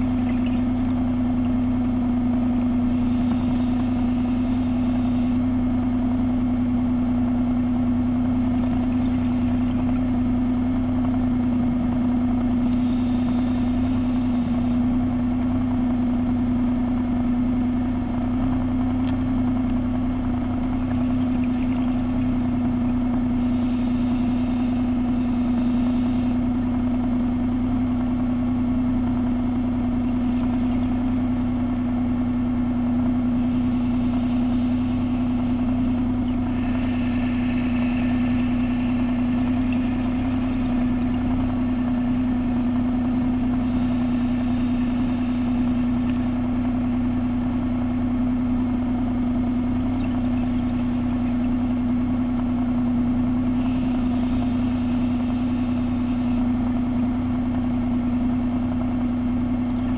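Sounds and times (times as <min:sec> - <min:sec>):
underwater motor hum: 0:00.0 - 0:59.9
exhaled bubbles: 0:36.3 - 0:42.3, 0:49.8 - 0:51.7
regulator breath hiss: 0:43.6 - 0:46.4.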